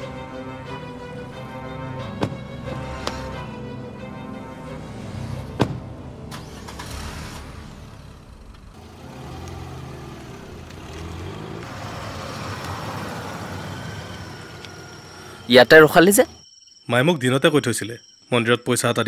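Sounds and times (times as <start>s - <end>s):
road noise: 0.0s - 18.3s
car engine driving off: 4.7s - 15.5s.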